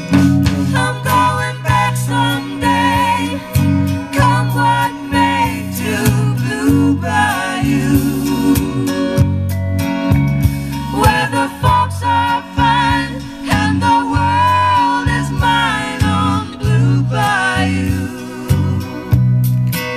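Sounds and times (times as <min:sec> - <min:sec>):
bass line: 0:00.0 - 0:19.9
guitar: 0:00.0 - 0:19.9
person singing: 0:00.1 - 0:09.2, 0:10.9 - 0:19.2.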